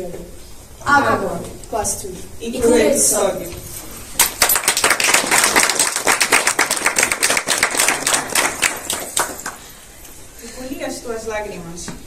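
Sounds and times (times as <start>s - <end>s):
audience applause: 4.2s - 9.7s.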